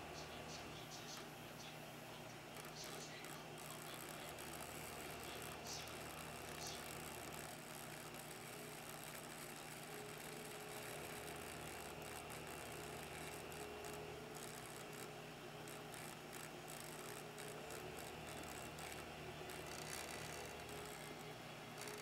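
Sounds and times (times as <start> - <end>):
small pump motor whirring underwater: 2.3 - 22.0.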